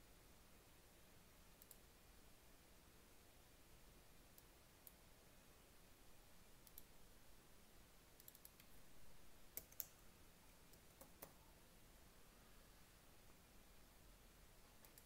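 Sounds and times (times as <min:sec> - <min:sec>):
mouse and keyboard clicks: 0:08.2 - 0:08.8, 0:09.5 - 0:10.0, 0:10.7 - 0:11.4, 0:14.8 - 0:15.0.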